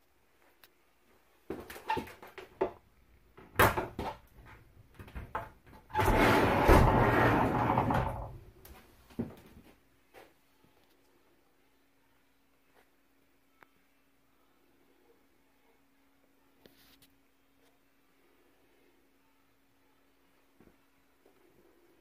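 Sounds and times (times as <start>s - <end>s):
sliding door rolling rumble: 5.9s - 8.4s.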